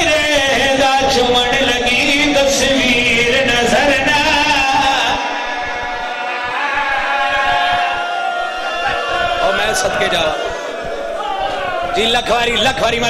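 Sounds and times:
man chanting melodically: 0.0s - 5.6s.

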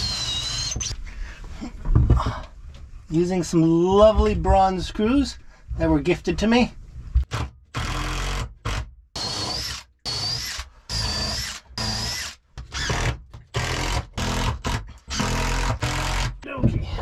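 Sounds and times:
cordless drill boring into wood: 0.0s - 0.9s, 7.8s - 16.3s.

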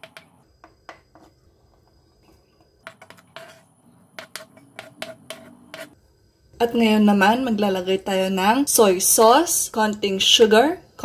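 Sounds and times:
knife scraping cutting board: 2.8s - 6.0s.

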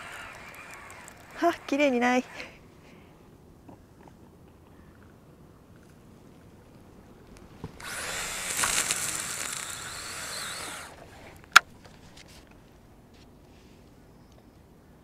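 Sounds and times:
fishing reel spool whirring: 0.0s - 2.5s, 7.8s - 11.4s.

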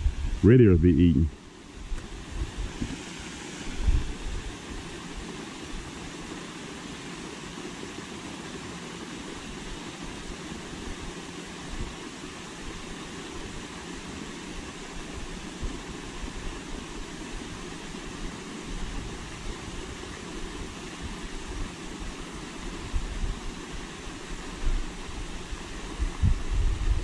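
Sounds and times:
wind buffeting microphone: 0.0s - 0.4s, 3.7s - 4.9s, 26.0s - 27.0s
outdoor rumble and hiss: 0.0s - 27.0s.

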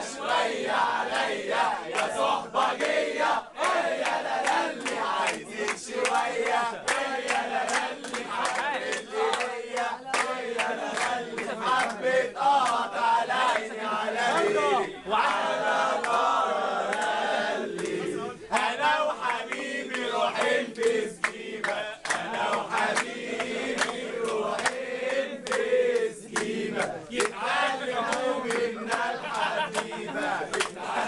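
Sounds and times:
young men singing and chanting: 0.0s - 31.0s
hand claps: 1.9s - 14.5s, 15.2s - 31.0s.

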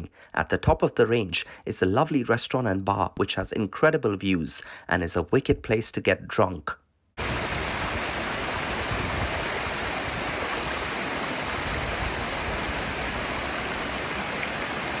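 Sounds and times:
stream cascading over rocks: 7.2s - 15.0s.

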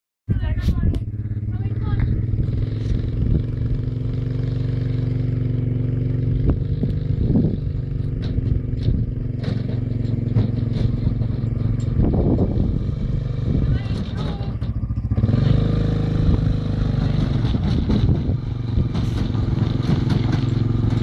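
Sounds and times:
quad bike engine running: 0.3s - 21.0s
light knocks and clatter: 8.0s - 12.4s, 17.0s - 21.0s.

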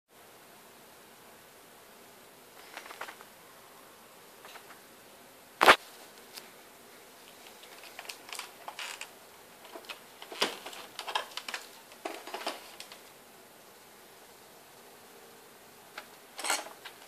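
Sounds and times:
light clicks and rattles: 7.3s - 13.1s.

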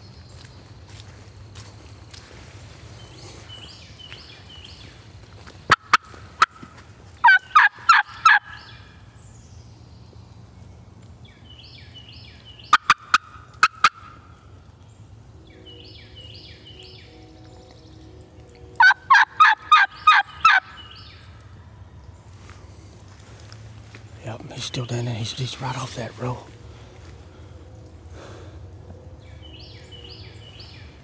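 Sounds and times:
turkey sharp notes: 5.7s - 8.6s, 12.7s - 14.2s, 18.8s - 20.8s
turkey rattling gobble: 7.2s - 8.6s, 12.7s - 14.2s, 18.8s - 20.8s.

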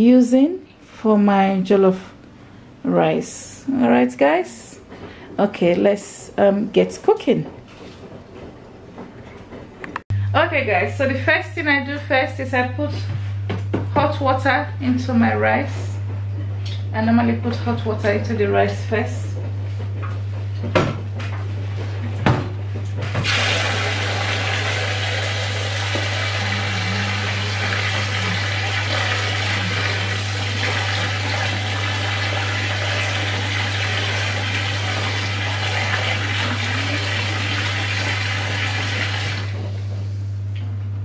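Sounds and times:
tap water running into bowl: 23.2s - 39.6s.

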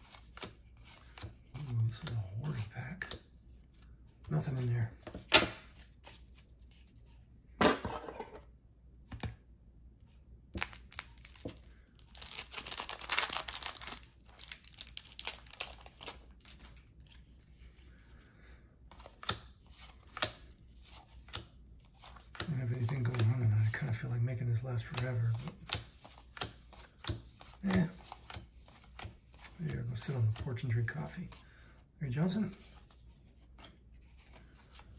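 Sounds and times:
cellophane crinkling: 10.6s - 16.6s
cellophane wrapper tearing: 12.1s - 16.1s.

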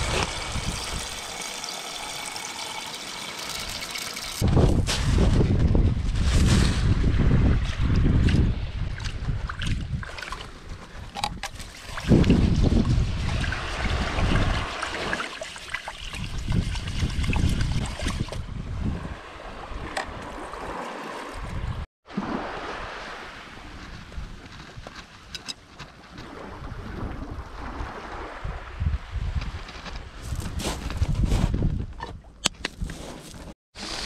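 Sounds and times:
wind rumbling on microphone: 0.0s - 1.3s, 4.4s - 14.9s, 16.0s - 33.2s
water swishing and splashing: 0.0s - 24.6s.

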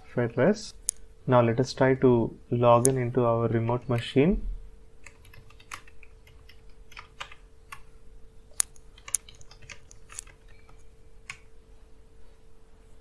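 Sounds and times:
typing on keyboard: 5.0s - 7.9s, 8.6s - 11.5s.

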